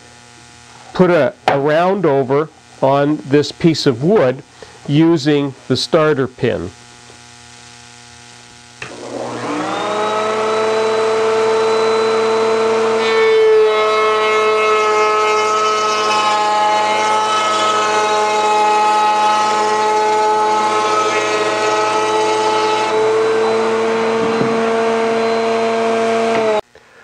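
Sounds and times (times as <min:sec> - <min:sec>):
router bit cutting wood: 0:08.8 - 0:26.6
wood router whining: 0:08.8 - 0:26.7.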